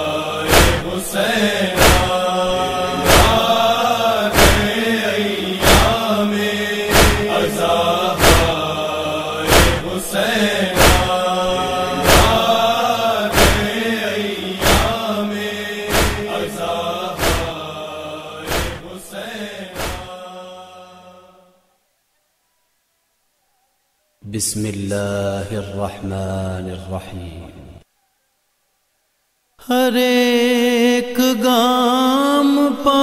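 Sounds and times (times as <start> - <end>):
man chanting: 0.0 - 20.6, 24.2 - 27.8
loud steady beat: 0.5 - 1.0, 1.8 - 4.8, 5.6 - 6.1, 6.9 - 8.7, 9.5 - 9.9, 10.8 - 13.8, 14.6 - 15.0, 15.9 - 17.6, 18.5 - 18.8, 19.8 - 20.1.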